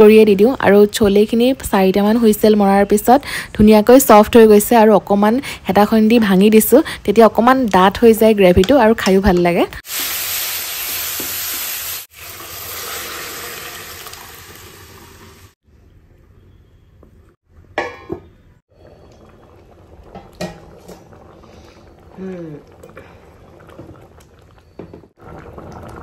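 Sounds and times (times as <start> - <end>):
masala sizzling in oil: 9.8 - 15.6
metal lid clanking on pan: 17.8 - 18.3, 20.2 - 21.0.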